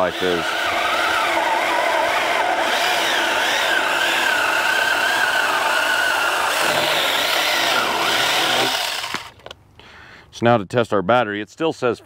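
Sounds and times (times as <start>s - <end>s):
electric chainsaw cutting log: 0.0s - 9.5s.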